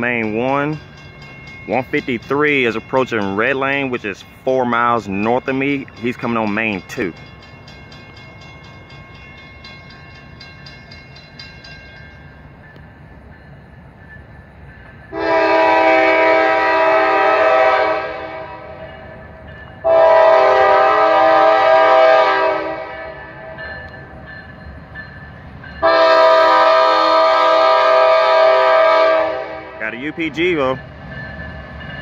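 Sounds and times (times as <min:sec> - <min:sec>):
low rumble of train: 0:00.0 - 0:32.0
locomotive air horn blasts: 0:15.1 - 0:18.8, 0:19.8 - 0:23.3, 0:25.8 - 0:29.8.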